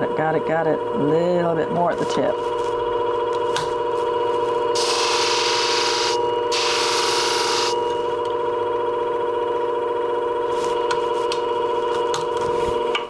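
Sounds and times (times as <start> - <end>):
sharpening machine motor humming: 4.2 - 8.7
blade grinding on hone wheel: 4.8 - 8.1.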